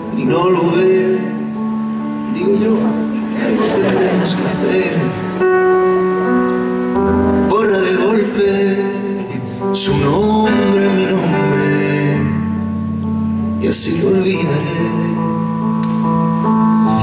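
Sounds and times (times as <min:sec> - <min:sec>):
man singing: 0:00.0 - 0:05.4, 0:07.3 - 0:15.8, 0:16.6 - 0:17.0
piano chords: 0:00.0 - 0:17.0.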